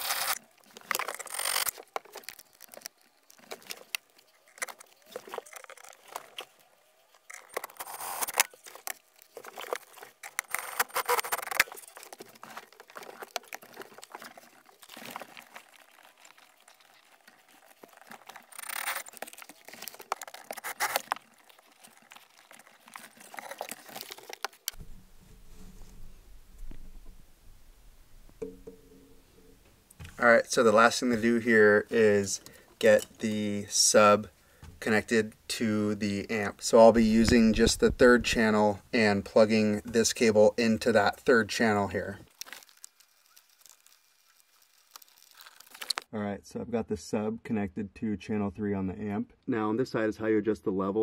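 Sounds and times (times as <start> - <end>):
handling and rustling noise: 0.0 - 35.1, 36.3 - 46.1.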